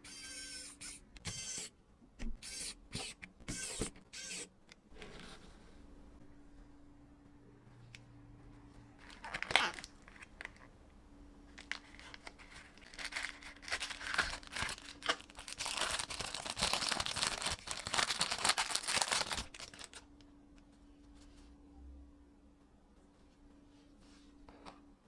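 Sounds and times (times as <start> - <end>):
plastic packaging crinkling: 9.0 - 10.6, 11.5 - 20.1.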